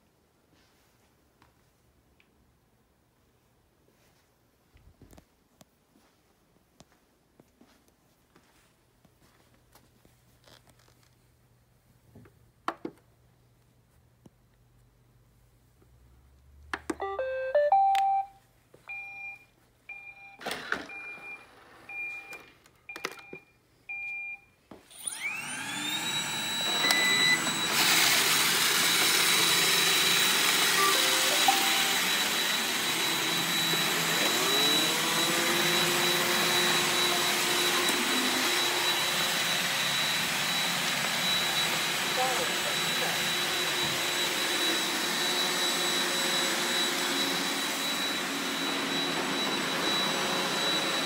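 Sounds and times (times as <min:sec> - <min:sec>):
short beeps: 0:17.0 - 0:22.4, 0:30.8 - 0:32.6
vacuum motor whine: 0:24.9 - 0:51.0
short rising chime: 0:30.7 - 0:33.8.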